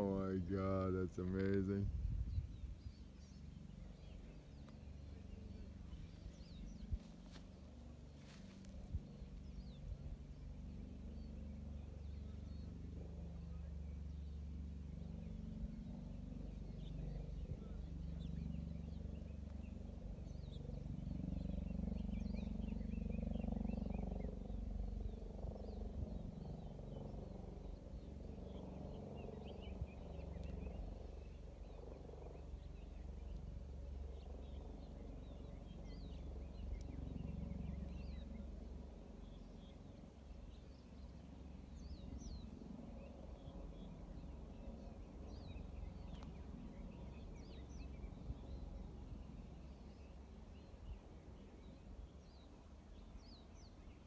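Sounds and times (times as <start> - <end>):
wind rumbling on microphone: 0.0 - 10.3, 20.8 - 31.8
birds chirping: 0.0 - 54.0.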